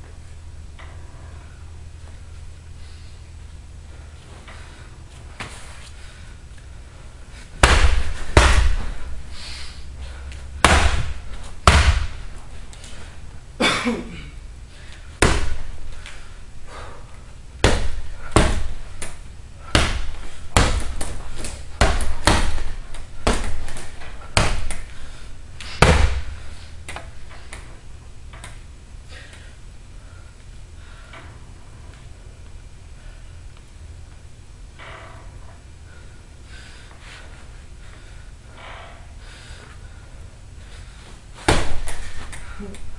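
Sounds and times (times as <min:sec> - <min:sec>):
punches hitting heavy bag: 0:07.6 - 0:09.1, 0:10.6 - 0:12.3, 0:15.2 - 0:15.8, 0:17.6 - 0:24.9, 0:25.7 - 0:26.4, 0:41.4 - 0:42.2.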